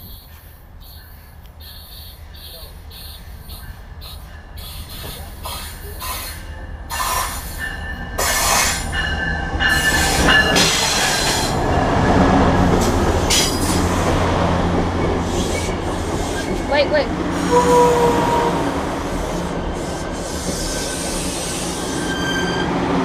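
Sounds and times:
train rumbling and braking: 0.0 - 23.0
wheels squealing: 20.1 - 22.9.

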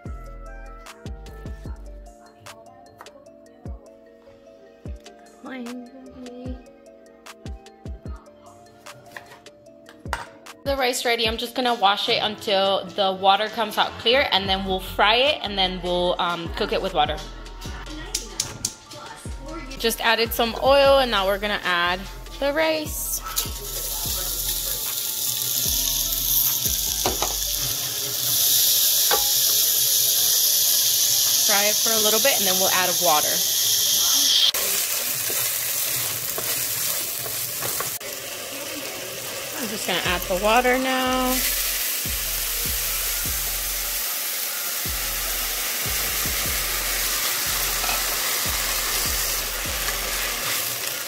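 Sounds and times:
rice sizzling in hot oil: 22.8 - 51.0
spoon stirring: 28.6 - 29.6, 34.3 - 38.1, 47.1 - 50.7.

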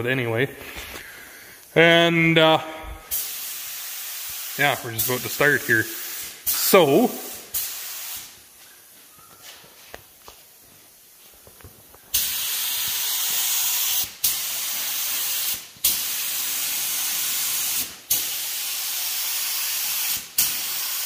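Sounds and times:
paint spray gun hissing: 3.1 - 8.6, 12.1 - 21.0.

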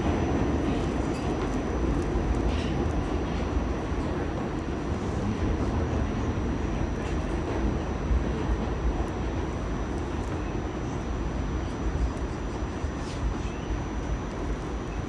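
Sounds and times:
subway wheels rumbling: 0.0 - 15.0.

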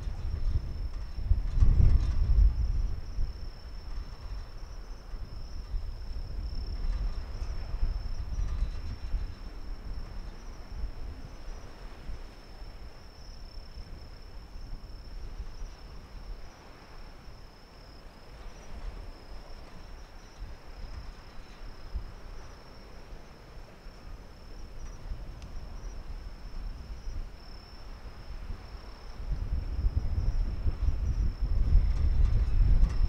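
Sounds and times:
insects chirping: 0.0 - 33.0.

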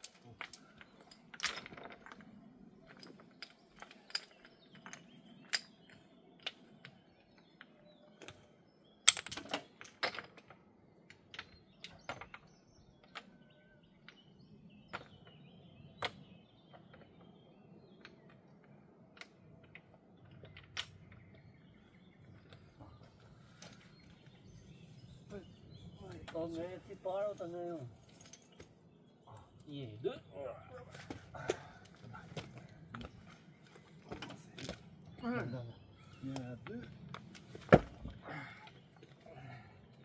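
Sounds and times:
stones clacking on stone: 0.0 - 8.4.

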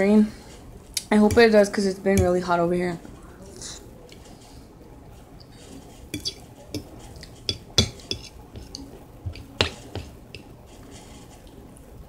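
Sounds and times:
fork clinking on ceramic plate: 6.2 - 9.8.

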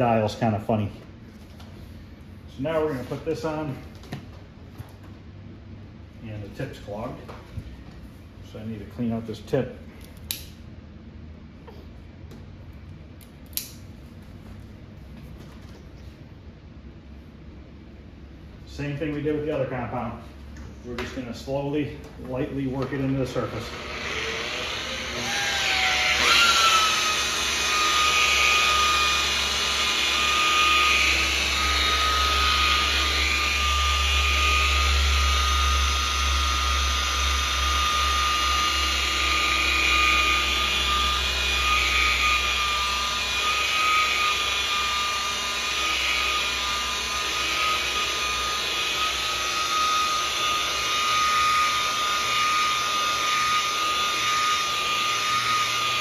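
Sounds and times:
rotary polisher motor whine: 21.0 - 56.0.

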